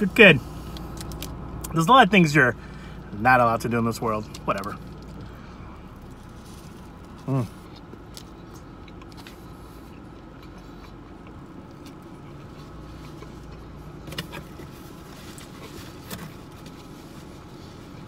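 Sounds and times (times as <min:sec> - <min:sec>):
car interior hum: 0:00.0 - 0:18.0
person eating rustles and clicks: 0:05.9 - 0:18.0.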